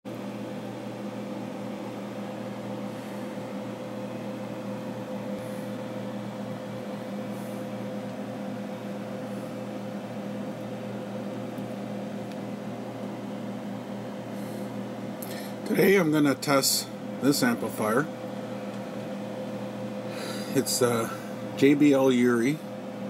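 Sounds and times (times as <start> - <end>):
power amplifier hum: 0.1 - 23.0.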